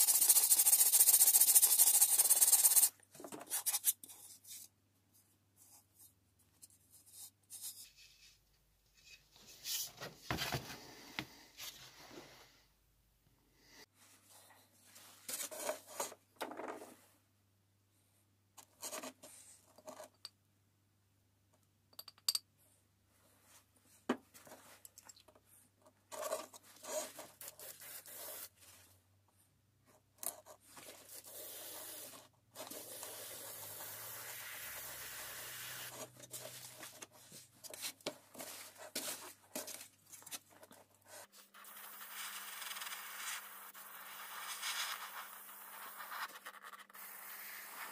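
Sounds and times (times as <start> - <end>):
airbrush spraying: 0.0 - 2.9.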